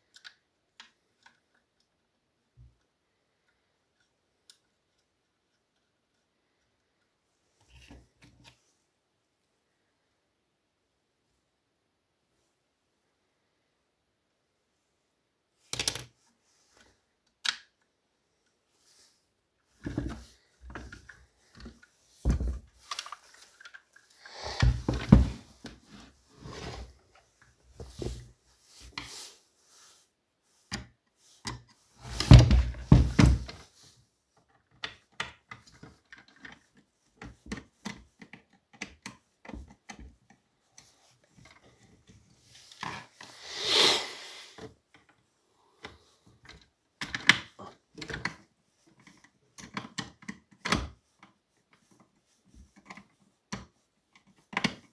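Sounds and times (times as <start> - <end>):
plastic parts clicking and knocking: 0.0 - 8.6, 15.6 - 16.2, 16.8 - 18.6, 19.6 - 26.0, 34.4 - 43.2, 44.6 - 54.9
short scraping rush: 43.3 - 44.6.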